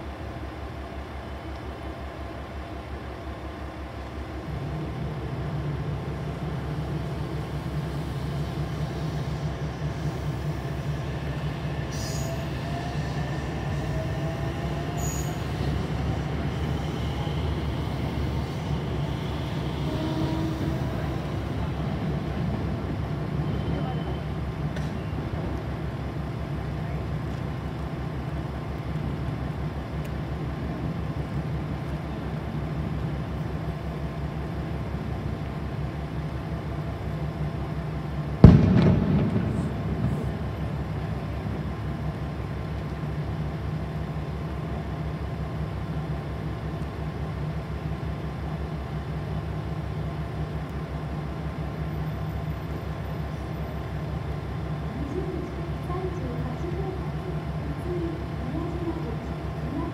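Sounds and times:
loud bang: 38.4s - 40.6s.

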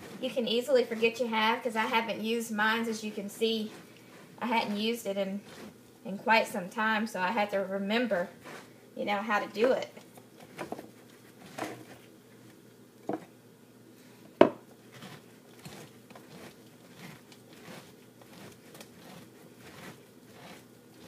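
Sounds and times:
corer turning through fruit: 0.0s - 5.8s, 8.0s - 8.8s, 9.6s - 13.4s, 14.0s - 21.0s.

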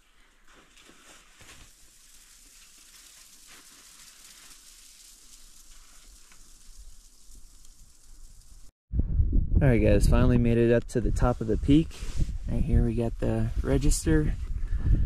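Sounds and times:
footsteps crunching in snow: 0.0s - 7.2s
steady hiss: 0.0s - 8.7s.

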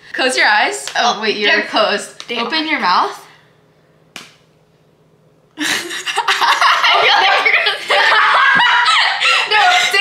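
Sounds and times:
girls laughing loudly: 5.6s - 10.0s.

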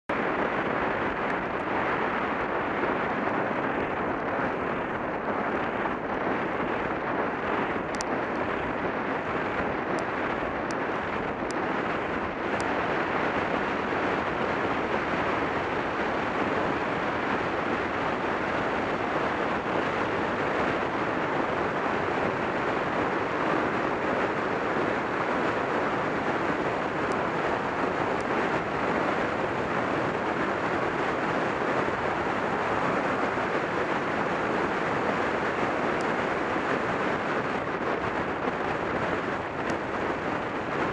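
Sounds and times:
wind rush on microphone: 0.0s - 40.9s
faint ticks: 7.9s - 8.4s.

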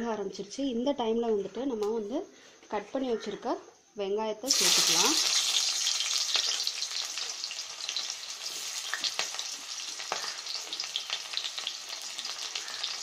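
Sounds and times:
onions sizzling in hot oil: 4.5s - 13.0s.

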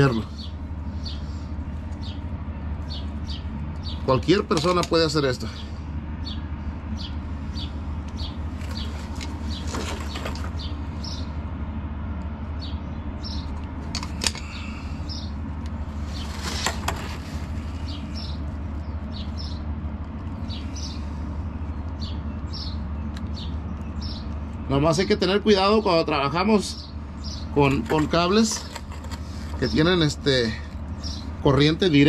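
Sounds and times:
small birds chirping: 0.0s - 32.0s
steady low rumble: 0.0s - 32.0s
wire ends rustling: 8.5s - 10.6s.

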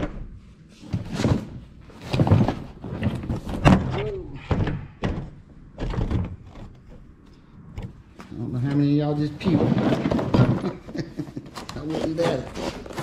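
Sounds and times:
cardboard box scraping: 11.8s - 13.0s.

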